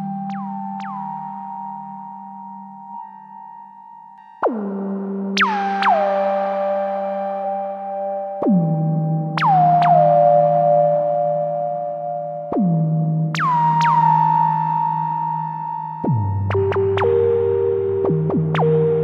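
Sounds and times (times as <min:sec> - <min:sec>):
synthesizer chords and swooping notes: 0:04.4 - 0:19.0.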